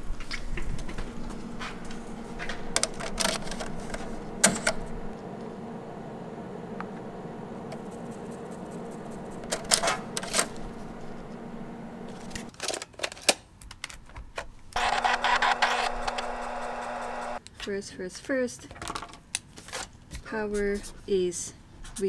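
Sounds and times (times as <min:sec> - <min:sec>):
floppy drive whirring: 0:00.0 - 0:12.5, 0:14.8 - 0:17.4
instrument hum: 0:00.0 - 0:12.5, 0:14.8 - 0:17.4
floppy drive mechanical clicks: 0:00.3 - 0:05.4, 0:06.8 - 0:12.5, 0:14.8 - 0:17.4
floppy disk ejecting clacks: 0:00.8 - 0:04.9, 0:08.8 - 0:12.5, 0:14.8 - 0:17.4.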